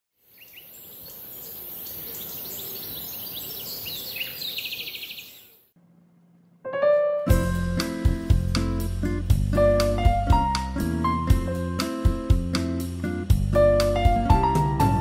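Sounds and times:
birds chirping and trilling: 0:00.2 - 0:05.7
background piano music: 0:06.4 - 0:15.0.

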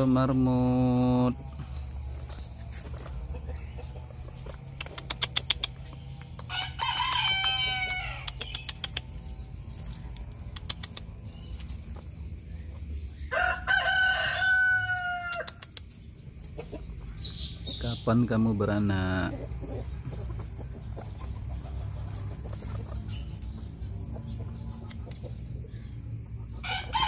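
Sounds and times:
sharp clicks: 0:04.6 - 0:09.2, 0:10.1 - 0:11.9, 0:15.3 - 0:16.0
rooster crowing: 0:06.5 - 0:08.3, 0:13.3 - 0:15.6, 0:26.6 - 0:27.0.

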